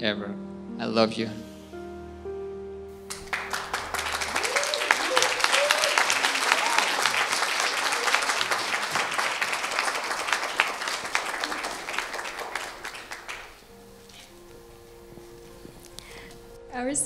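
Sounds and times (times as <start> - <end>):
people applauding: 3.1 - 13.7.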